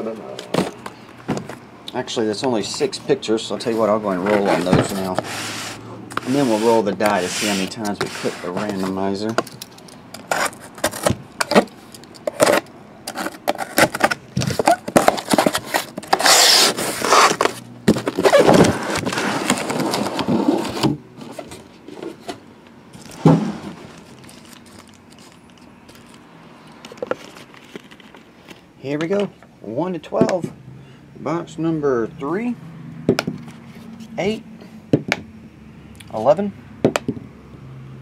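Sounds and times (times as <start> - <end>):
cardboard rubbing and scraping: 3.6 - 9.1, 10.2 - 11.6, 12.3 - 22.4.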